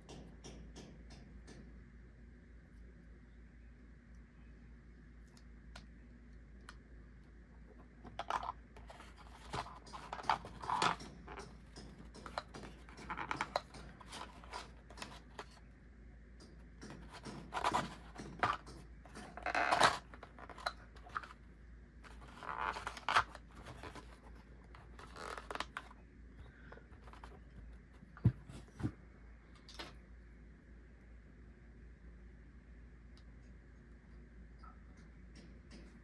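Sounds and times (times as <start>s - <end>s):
plastic items clicking and scraping: 8.0s - 15.6s, 16.8s - 21.4s, 22.0s - 28.9s.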